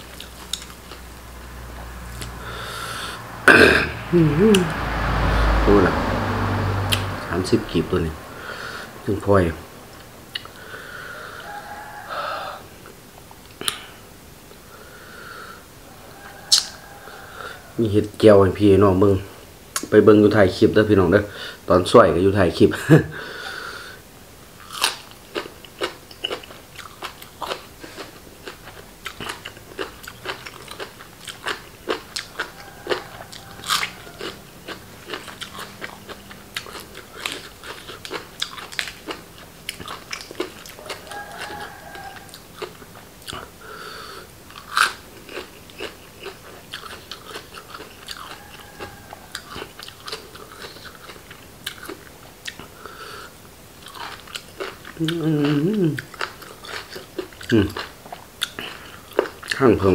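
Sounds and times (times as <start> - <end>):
man chewing crunchy food: 0.0 - 3.6, 9.9 - 12.1, 16.5 - 17.6, 24.6 - 59.9.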